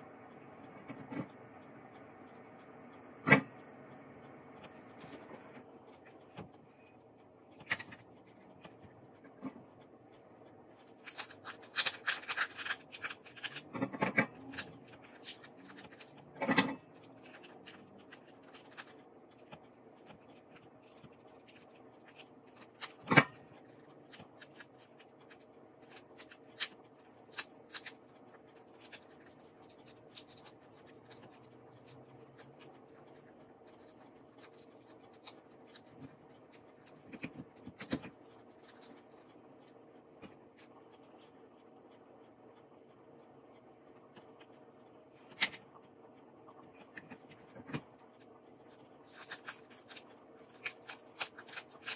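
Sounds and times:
lobster shells crackling and clicking: 0:05.9 - 0:41.5, 0:46.7 - 0:51.9.

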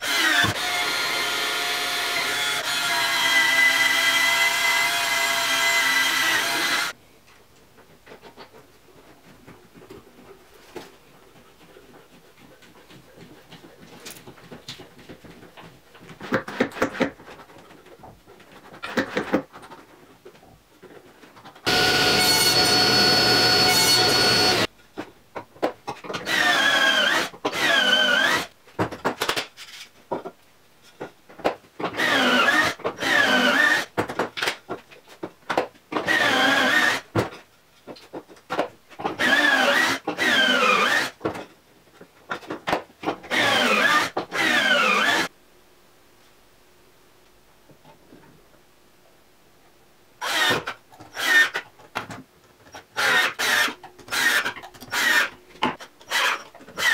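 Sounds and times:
cordless drill driving screws: 0:00.0 - 0:06.9, 0:26.2 - 0:28.5, 0:43.3 - 0:45.3, 0:50.2 - 0:51.6, 0:53.0 - 0:55.3, 0:56.1 - 0:56.9.

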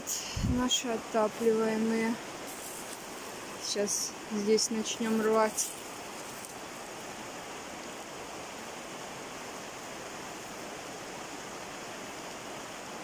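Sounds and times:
rain on a plastic roof: 0:00.0 - 0:13.0.

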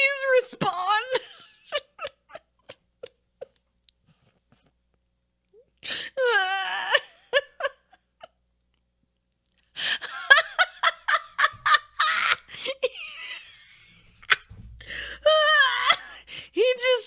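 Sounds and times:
woman laughing hard: 0:01.1 - 0:03.6, 0:06.2 - 0:08.4, 0:09.8 - 0:16.2.

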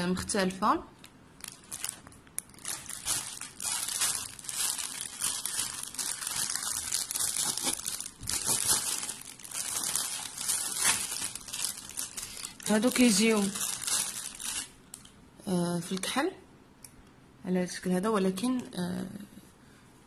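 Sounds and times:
plastic packaging crinkling: 0:01.0 - 0:15.1.

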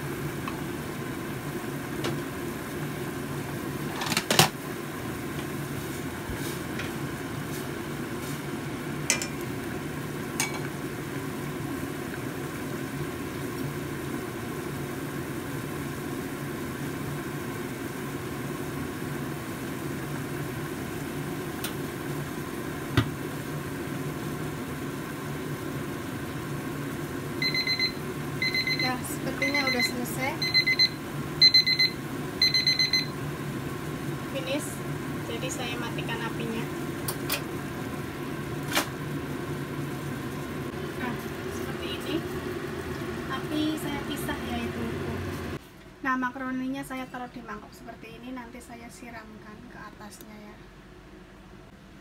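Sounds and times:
soup simmering hum: 0:00.0 - 0:46.0.

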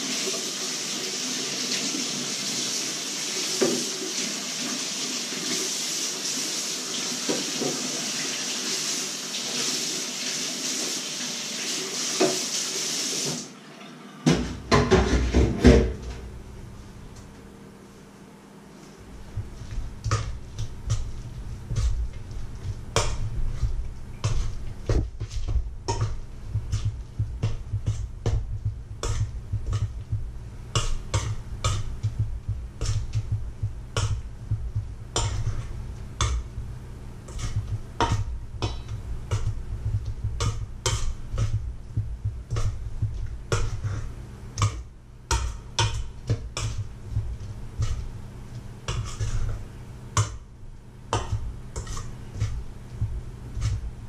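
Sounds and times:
hand squeezing mashed potato: 0:19.0 - 0:36.6, 0:37.2 - 0:49.7
metal bowl knocking on wood: 0:24.2 - 0:35.5, 0:37.4 - 0:43.8.

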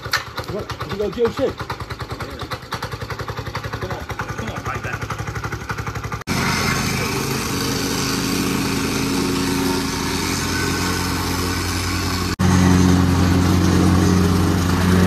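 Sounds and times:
plate compactor engine running: 0:00.0 - 0:15.0.

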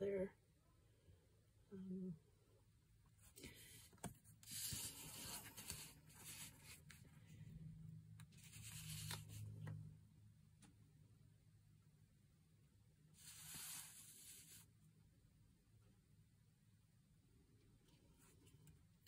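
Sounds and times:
paper rustling on surface: 0:04.0 - 0:07.0, 0:08.3 - 0:09.6, 0:13.2 - 0:14.7.

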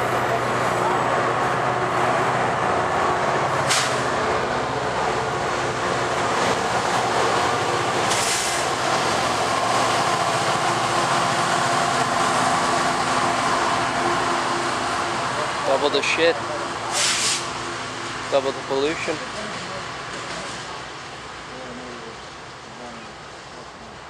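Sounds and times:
diesel locomotive engine working hard: 0:00.0 - 0:24.0
wheel-on-rail noise: 0:00.0 - 0:24.0
brief hisses: 0:03.7 - 0:04.0, 0:08.1 - 0:08.6, 0:16.9 - 0:17.5.

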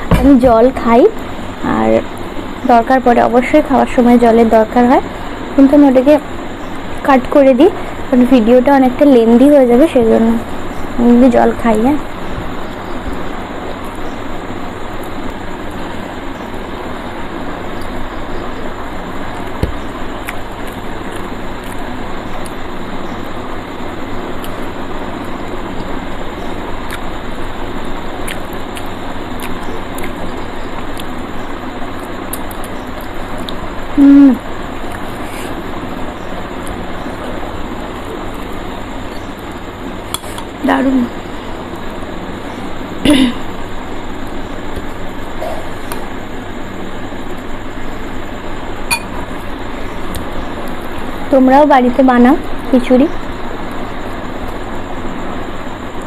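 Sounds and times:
chewing and mouth clicks: 0:20.2 - 0:21.8, 0:26.9 - 0:27.1, 0:28.2 - 0:31.2.

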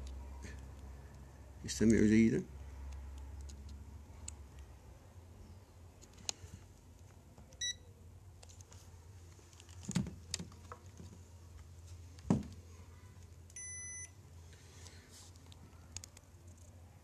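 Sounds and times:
multimeter beeps: 0:07.6 - 0:07.9, 0:13.6 - 0:14.2.

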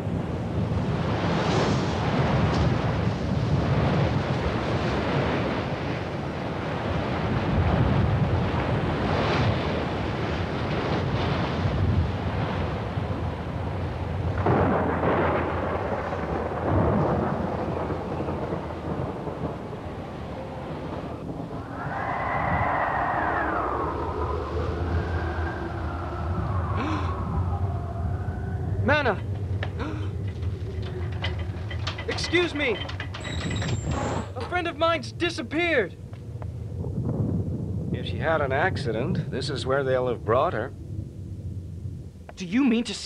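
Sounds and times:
wind: 0:00.0 - 0:43.0
waves crashing against cliff: 0:00.6 - 0:27.8
deep rumbling roar: 0:11.7 - 0:32.2.

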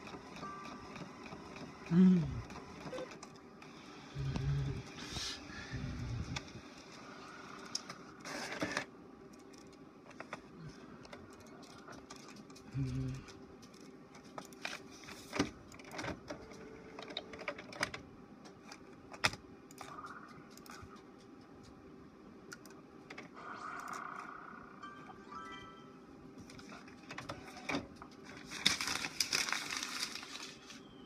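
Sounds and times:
faint motor whir: 0:00.0 - 0:25.0
paper rustling: 0:28.2 - 0:30.9.

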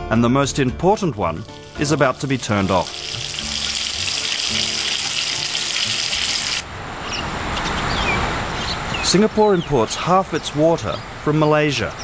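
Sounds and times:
soft music: 0:00.0 - 0:06.6
water running from a tap: 0:01.3 - 0:06.6.

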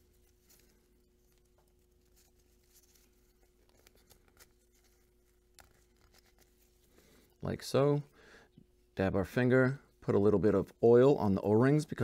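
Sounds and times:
gloved hands clicking and rubbing: 0:00.0 - 0:06.9
faint steady hum: 0:00.0 - 0:12.0.

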